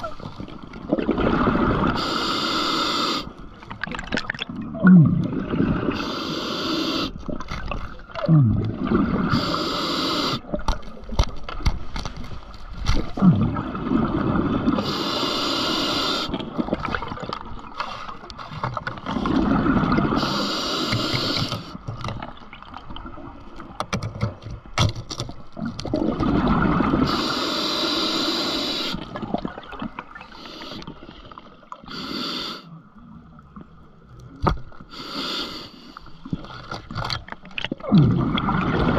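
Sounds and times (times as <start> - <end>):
exhaled bubbles gurgling: 0.0 - 11.2, 12.9 - 23.8, 25.5 - 32.1, 36.2 - 38.9
regulator inhale hiss: 1.9 - 3.4, 6.0 - 7.2, 9.3 - 10.4, 14.8 - 16.4, 20.2 - 21.8, 27.1 - 29.1, 30.2 - 31.1, 31.9 - 32.8, 34.8 - 36.2
clicks and knocks of diving gear: 10.6 - 13.2, 23.8 - 25.9, 34.4 - 34.8, 36.3 - 37.7.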